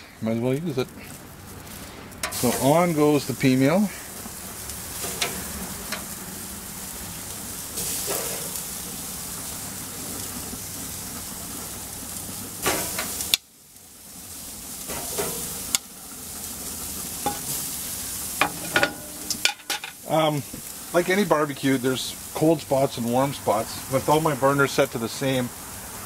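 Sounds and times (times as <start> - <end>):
bacon sizzling on a grill: 0.1 - 26.0
metal tongs clicking on grate: 2.2 - 2.4, 5.0 - 6.1, 18.4 - 20.0.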